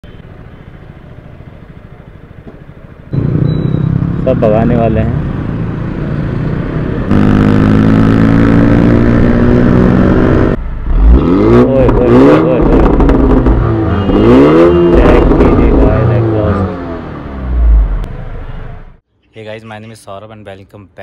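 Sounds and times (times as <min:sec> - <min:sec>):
vehicle engine droning: 0:00.0 - 0:19.0
engine revving: 0:03.1 - 0:19.0.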